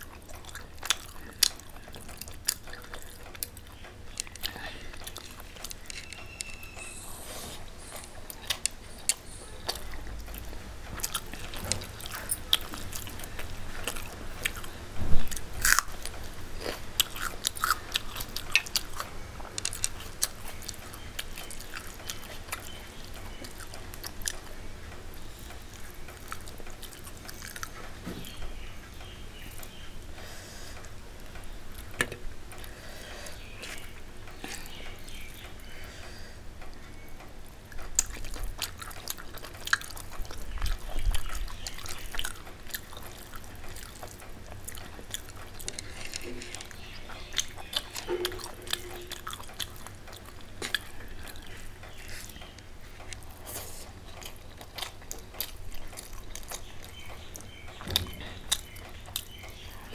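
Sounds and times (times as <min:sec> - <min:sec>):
person chewing and biting: 0:00.0 - 0:24.5, 0:37.8 - 0:57.8.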